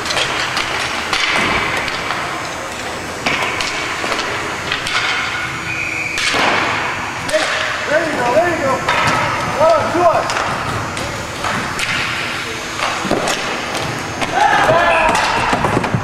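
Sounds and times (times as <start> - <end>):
sticks and puck hitting boards: 0.0 - 2.3, 3.2 - 5.5, 6.1 - 8.2, 8.8 - 16.0
players shouting: 14.2 - 15.8.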